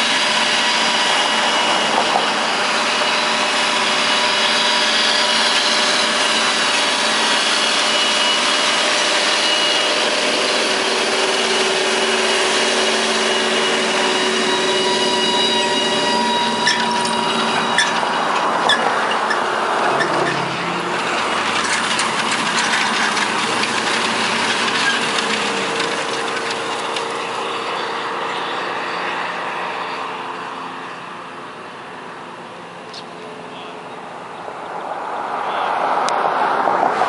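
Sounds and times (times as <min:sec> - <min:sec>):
tractor engine drone: 0:00.0 - 0:37.0
harrow discs rattling in soil: 0:15.5 - 0:28.5.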